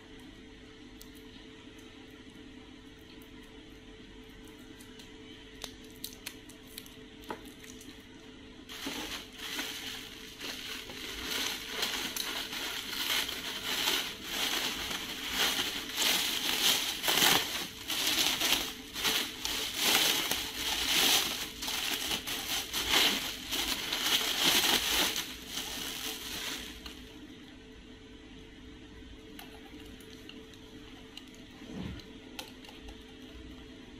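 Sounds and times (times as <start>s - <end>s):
plastic packaging crinkling: 8.7s - 27.1s.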